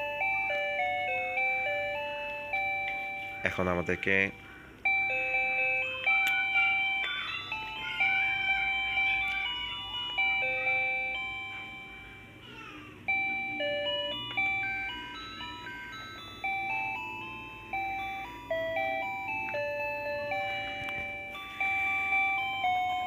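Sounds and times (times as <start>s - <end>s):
electronic toy melody beeps: 0.0s - 12.4s, 13.0s - 23.0s.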